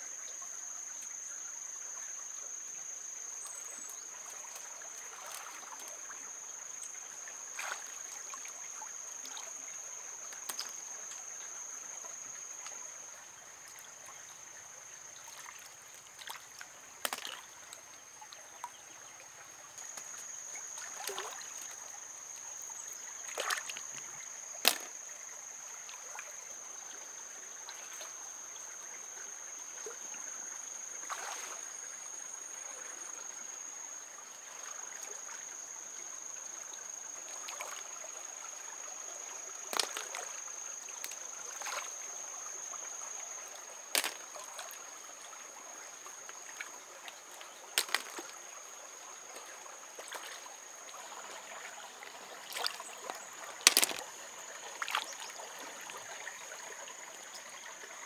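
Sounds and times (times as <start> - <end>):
stream trickling over stones: 0.0 - 58.0
clicks and small splashes: 3.8 - 6.2, 6.8 - 11.5, 15.2 - 18.9, 19.7 - 22.0, 22.9 - 25.1, 31.0 - 31.6, 37.3 - 37.9, 39.5 - 42.0, 43.4 - 45.4, 46.0 - 56.8.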